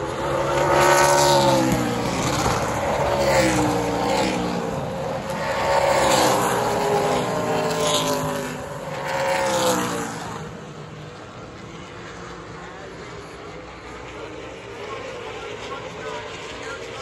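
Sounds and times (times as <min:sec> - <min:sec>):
race car engines passing: 0:00.0 - 0:17.0.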